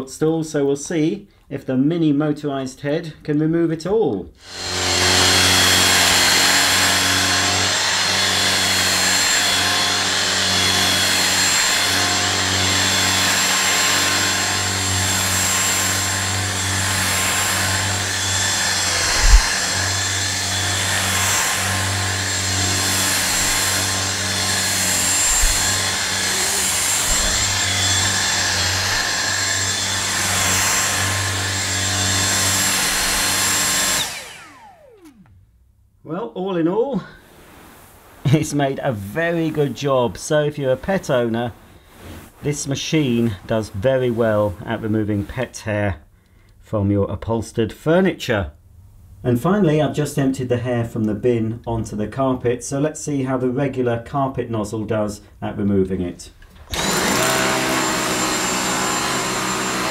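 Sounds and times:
cordless vacuum motor whine: 4.4s - 35.4s, 56.6s - 59.9s.

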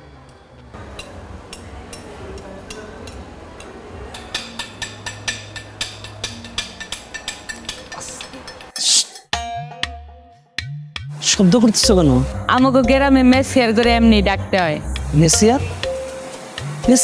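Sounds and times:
ticking percussion rhythm: 1.0s - 17.0s.

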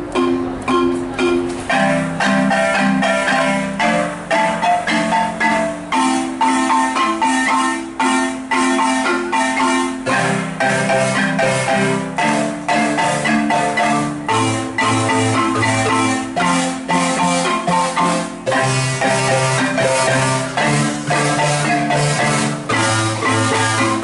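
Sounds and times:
deep bass marimba notes: 0.0s - 24.0s
marimba ensemble playing: 0.0s - 24.0s.

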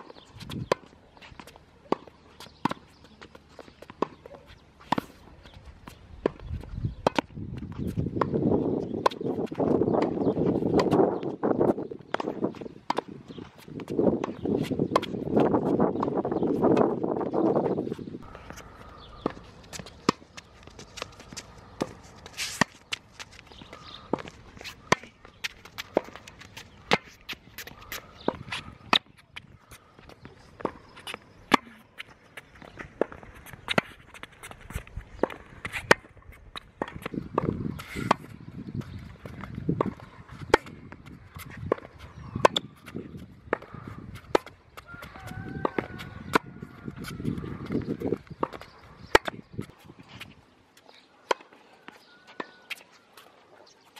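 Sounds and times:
tennis ball bouncing on court: 0.0s - 53.4s
footsteps on court: 0.0s - 53.9s
tennis ball hit by racket: 7.0s - 11.0s, 11.6s - 18.6s, 19.2s - 29.2s, 30.6s - 31.8s, 32.8s - 49.8s, 51.2s - 53.3s.

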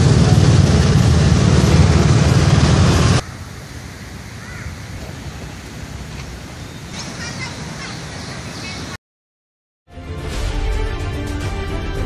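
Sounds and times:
faint bird chirp: 6.2s - 9.0s.

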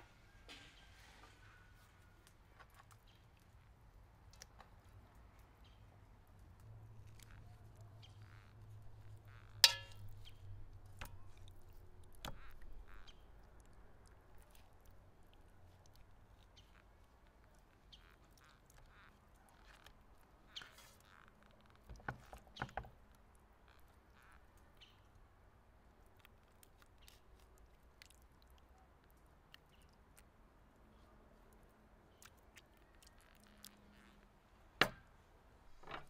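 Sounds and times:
metallic clink: 9.6s - 10.1s.

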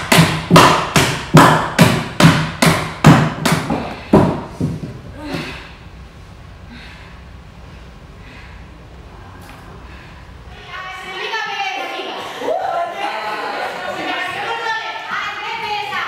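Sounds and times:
sharp loud thumps: 0.0s - 5.1s.

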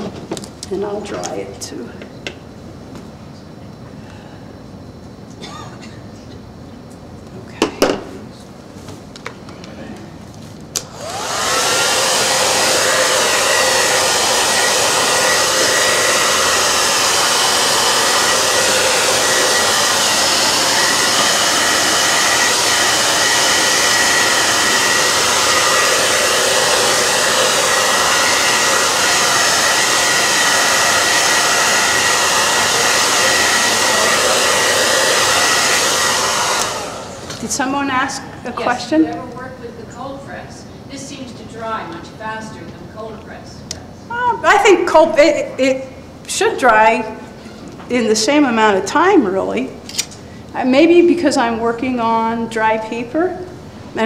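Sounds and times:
hair dryer blowing: 10.8s - 39.3s, 47.9s - 54.0s.

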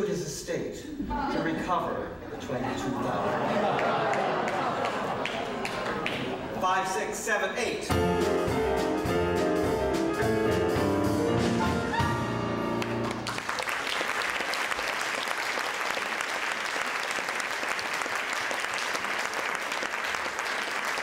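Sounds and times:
audience applause: 3.3s - 6.6s, 12.7s - 21.0s
piano and ensemble playing: 7.9s - 14.8s.

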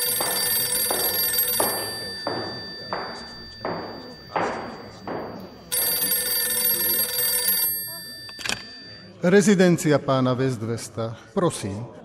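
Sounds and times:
telephone bell ringing: 0.0s - 9.3s.

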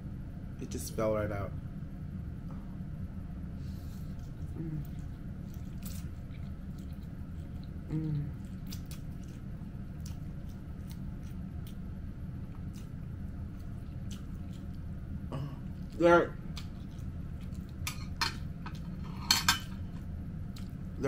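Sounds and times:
person chewing wetly: 4.1s - 19.1s, 19.8s - 20.9s
short vocal hum: 4.5s - 5.1s, 7.8s - 8.6s, 15.3s - 15.7s.

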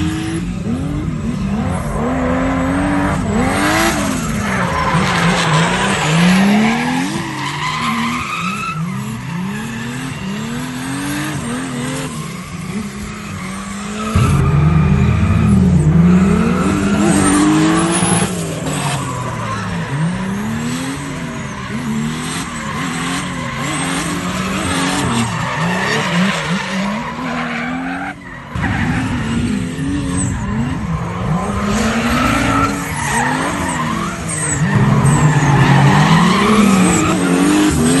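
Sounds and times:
car engine revving: 8.9s - 27.8s.

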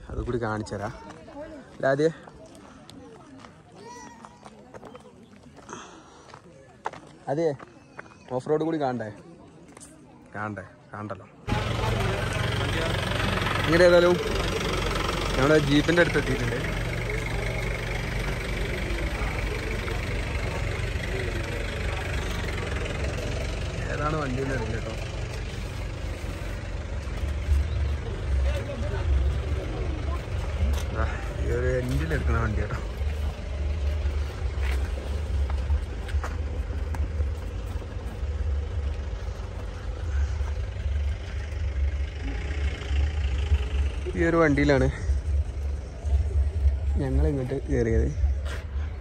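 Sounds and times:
jeep engine idling: 11.5s - 49.0s.

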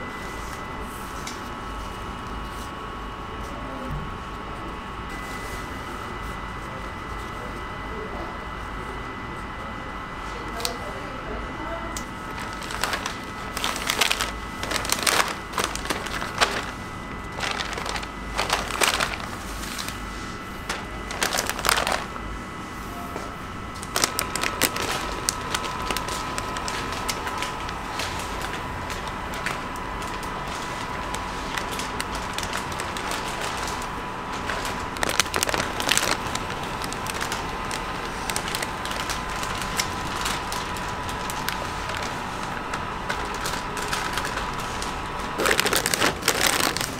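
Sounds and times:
plastic bag crinkling: 12.2s - 22.2s, 23.7s - 46.9s.

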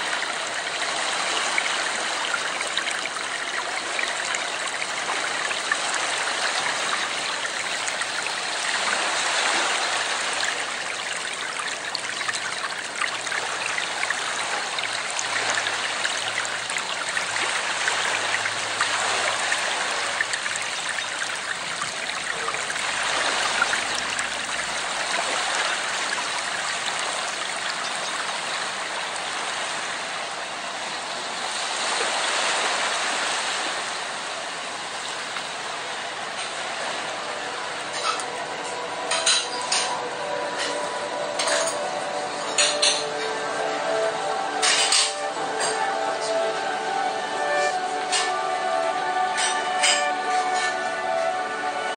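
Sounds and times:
running water rushing and trickling: 0.0s - 51.9s.

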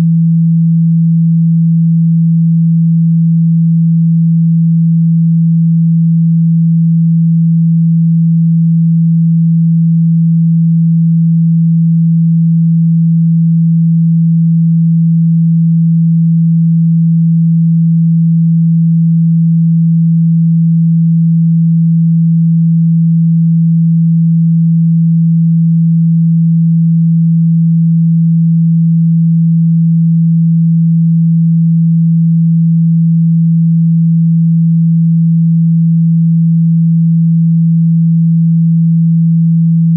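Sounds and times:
low sine-wave test tone: 0.0s - 39.9s.

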